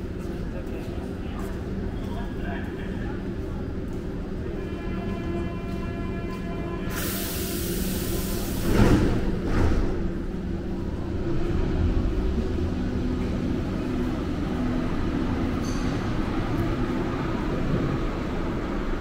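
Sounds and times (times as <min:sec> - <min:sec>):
train rumbling: 0:00.0 - 0:19.0
train air hiss: 0:06.9 - 0:09.1.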